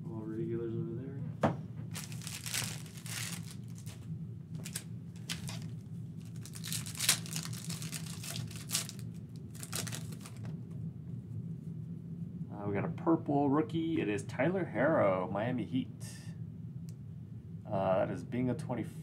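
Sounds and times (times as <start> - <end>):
steady low hum: 0.0 - 19.0
foil wrappers crinkling and tearing: 1.9 - 4.0, 4.6 - 10.5.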